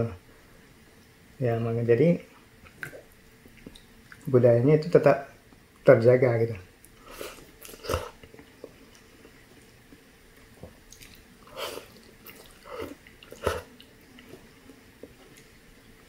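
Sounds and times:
person slurping noodles: 0:11.5 - 0:13.7.

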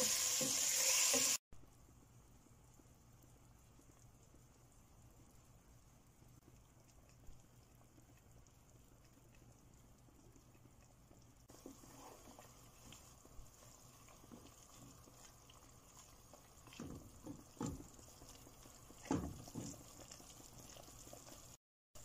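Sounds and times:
broth simmering: 0:00.0 - 0:22.0
wooden spoon scraping a pot: 0:11.5 - 0:21.6.

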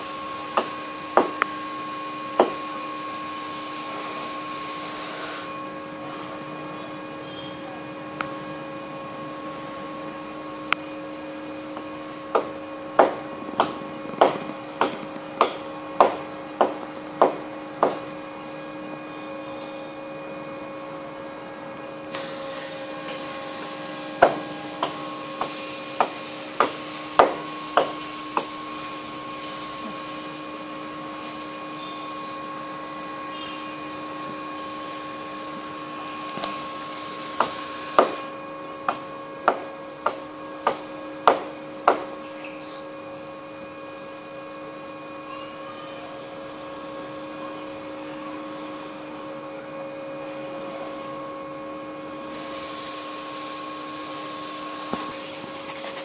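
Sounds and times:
steady hum: 0:00.0 - 0:56.0
sharp knocks: 0:12.4 - 0:18.0.

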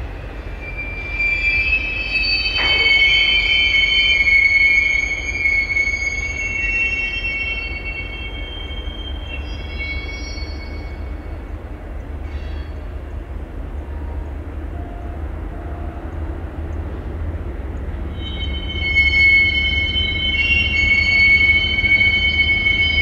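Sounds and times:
train wheels squealing: 0:00.0 - 0:13.1, 0:17.9 - 0:23.0
low train rumble: 0:00.0 - 0:23.0.

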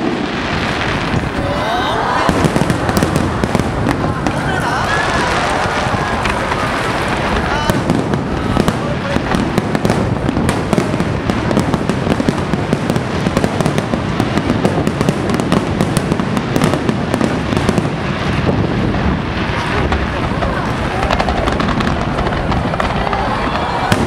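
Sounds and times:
fireworks bursting and crackling: 0:00.0 - 0:24.0.

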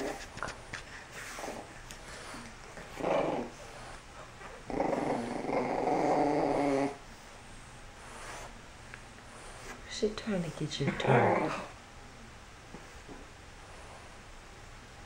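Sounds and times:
puppy play-growling: 0:00.0 - 0:07.4, 0:10.8 - 0:11.8.

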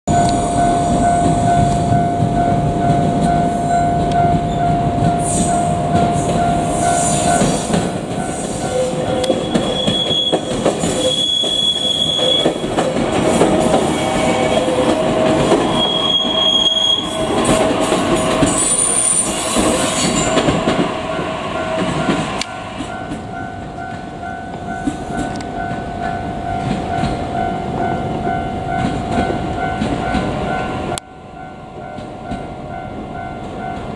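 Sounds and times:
steady held tone: 0:00.1 - 0:09.8
electric train running over rails: 0:00.1 - 0:33.9
level crossing warning bell: 0:00.1 - 0:33.9
high wheel squeals: 0:04.4 - 0:22.3.

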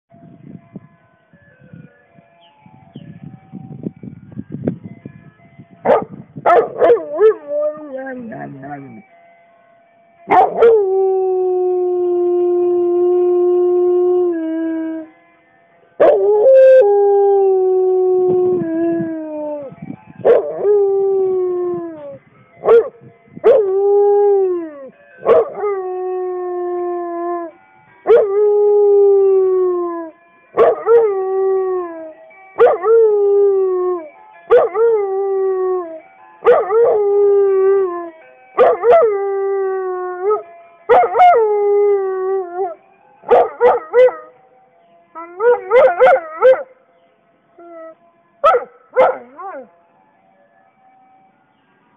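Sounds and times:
dog howling and yelping: 0:06.5 - 0:09.0, 0:45.2 - 0:46.8.

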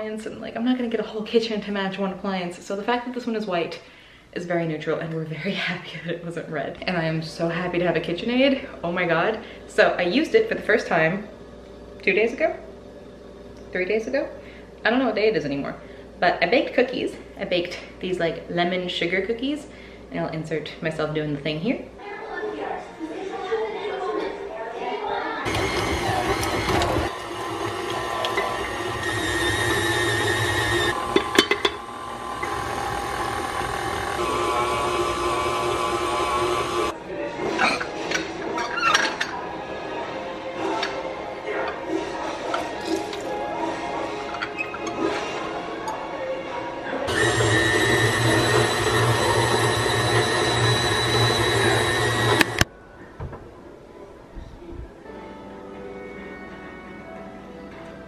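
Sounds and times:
stand mixer motor whirring: 0:25.5 - 0:36.9, 0:47.1 - 0:52.6.

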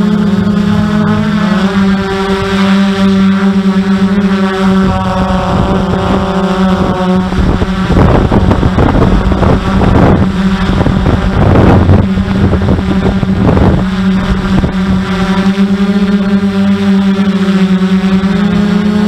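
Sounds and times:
motor hum: 0:00.0 - 0:19.0
wind buffeting microphone: 0:00.0 - 0:19.0.

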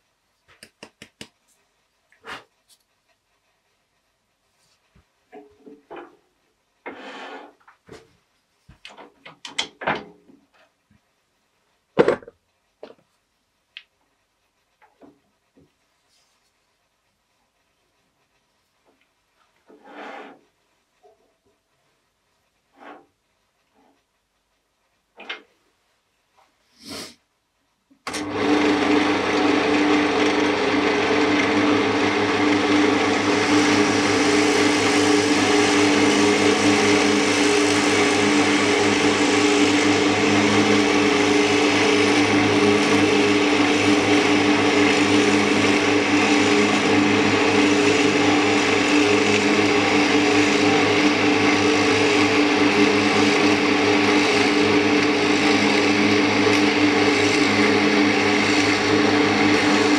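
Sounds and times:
drill bit boring into wood: 0:28.1 - 0:59.9
wood lathe humming: 0:28.1 - 0:59.9.

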